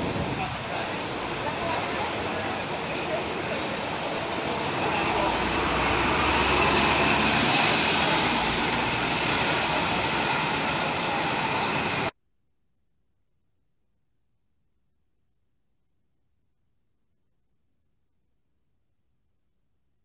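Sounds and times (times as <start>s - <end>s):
bus engine whining: 0.0s - 12.1s.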